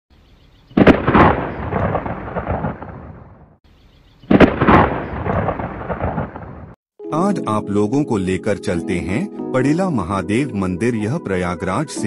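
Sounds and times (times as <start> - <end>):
thunderclap with rolling rumble: 0.8 - 3.6, 4.3 - 6.8.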